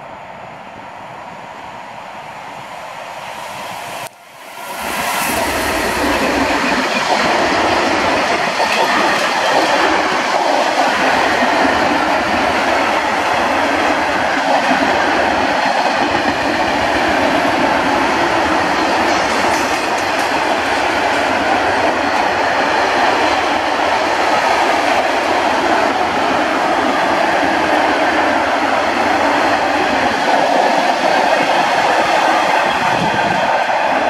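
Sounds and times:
freight train passing: 0:00.0 - 0:34.0.

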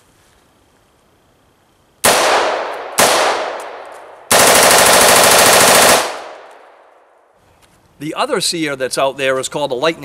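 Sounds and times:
rifle full-auto burst: 0:02.0 - 0:06.5.

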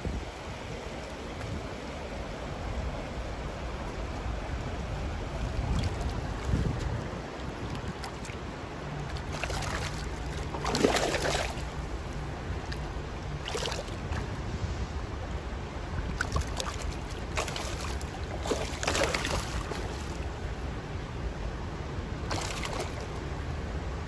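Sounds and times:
creek water rippling over rocks: 0:00.3 - 0:14.4, 0:15.4 - 0:21.0, 0:22.2 - 0:23.4
water splashing: 0:05.4 - 0:14.4, 0:16.0 - 0:20.5, 0:22.3 - 0:23.2.

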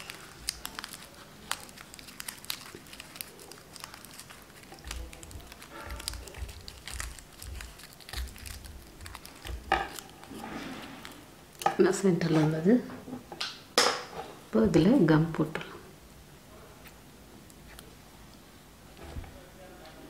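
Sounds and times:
paper crinkling: 0:00.0 - 0:11.2.

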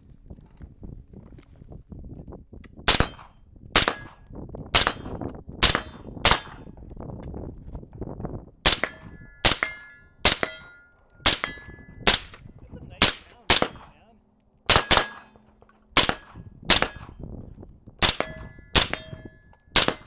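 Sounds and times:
rifle shots: 0:02.9 - 0:04.2, 0:04.8 - 0:06.7, 0:08.6 - 0:14.0, 0:14.7 - 0:17.2, 0:18.0 - 0:20.0
short metallic ring: 0:08.8 - 0:12.1, 0:18.2 - 0:20.0.

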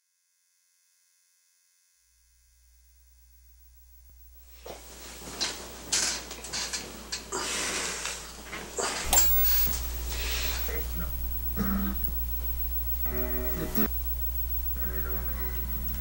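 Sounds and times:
low steady hum: 0:09.0 - 0:16.0
sharp noisy sounds: 0:09.0 - 0:16.0.

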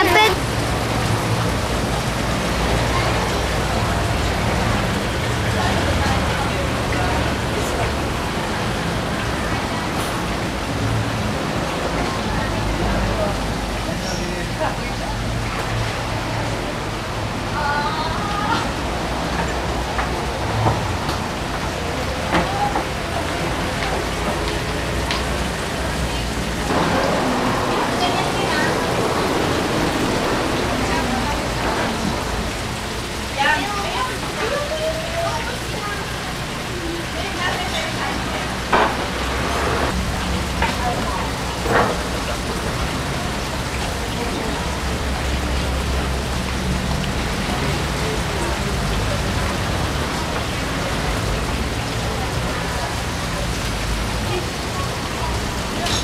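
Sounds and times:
indistinct voices: 0:00.0 - 0:56.0
steady rushing hiss: 0:26.3 - 0:33.4.

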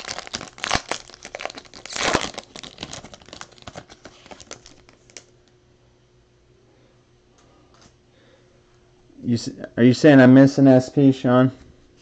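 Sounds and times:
foil wrapper tearing and crinkling: 0:00.0 - 0:05.3.

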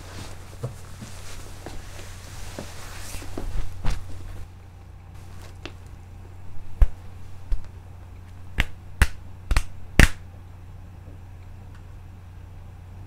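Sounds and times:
steady low hum: 0:00.0 - 0:13.0
sharp hand slaps: 0:08.6 - 0:10.2.

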